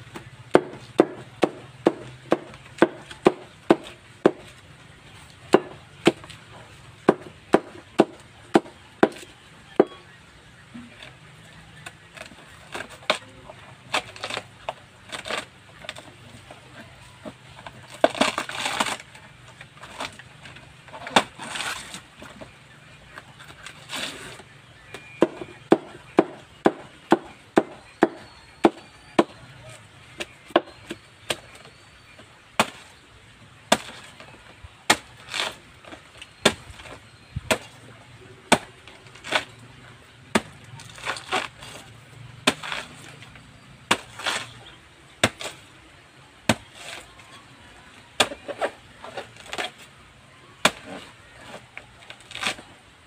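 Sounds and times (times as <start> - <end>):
machete chopping banana trunk: 0.1 - 4.6, 5.4 - 6.4, 7.0 - 10.0, 11.8 - 16.1, 17.7 - 19.2, 19.8 - 22.4, 23.5 - 29.4, 30.2 - 33.0, 33.6 - 37.8, 38.5 - 39.6, 40.2 - 45.7, 46.4 - 47.2, 48.2 - 49.9, 50.6 - 52.7.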